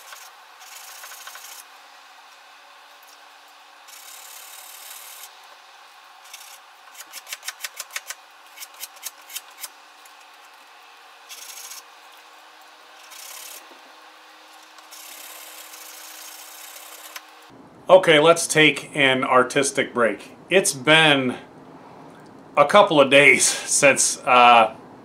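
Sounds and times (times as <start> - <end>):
sandpaper rubbing steel blade: 0.0 - 1.7, 3.9 - 5.3, 6.3 - 9.7, 11.3 - 11.9, 13.0 - 13.7, 14.9 - 17.2.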